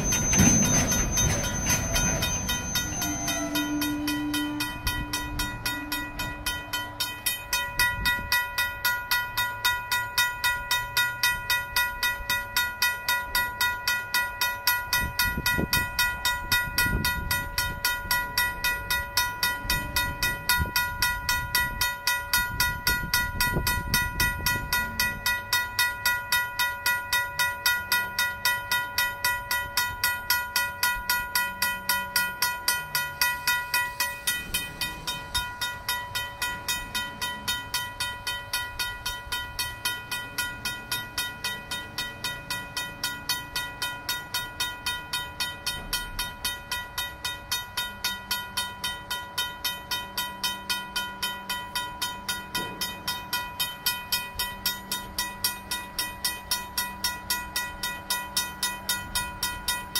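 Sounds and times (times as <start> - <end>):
train squeal: 0.0 - 8.0, 31.8 - 43.4
crossing bell ringing: 0.0 - 59.9
freight train rumbling: 0.0 - 59.9.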